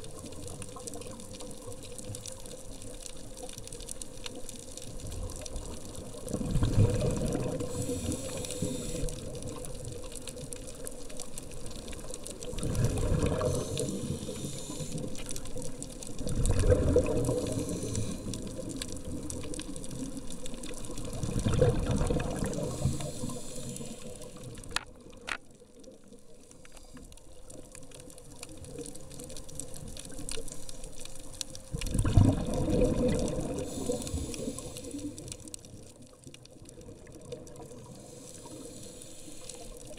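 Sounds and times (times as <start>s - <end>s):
exhaled bubbles underwater: 0.0s - 25.2s, 31.6s - 39.9s
regulator inhalation hiss: 7.6s - 9.4s, 13.3s - 15.5s, 17.3s - 18.7s, 22.6s - 24.6s, 33.4s - 35.4s, 37.8s - 39.9s.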